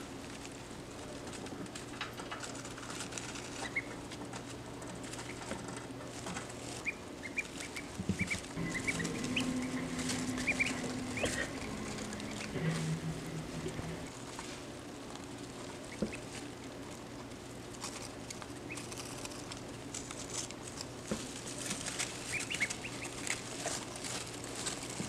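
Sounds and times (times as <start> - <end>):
ducklings rustling in bedding: 0.0 - 25.0
ducklings peeping: 3.4 - 4.0, 6.8 - 14.1, 15.9 - 16.3, 22.2 - 23.5.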